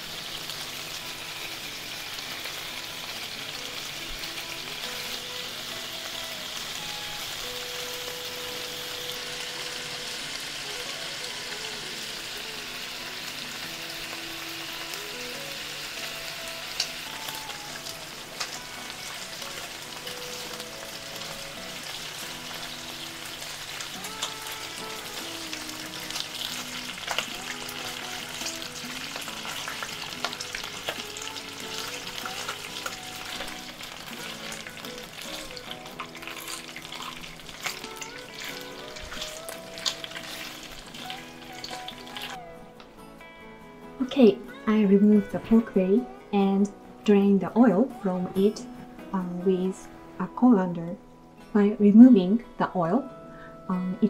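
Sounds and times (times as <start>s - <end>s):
pork sizzling in frying pan: 0.0s - 42.5s.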